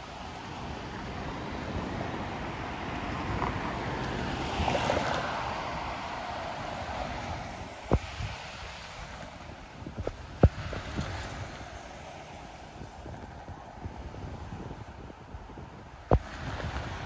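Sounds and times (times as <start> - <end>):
road traffic passing: 0.0 - 17.0
wind rumble on microphone: 0.0 - 17.0.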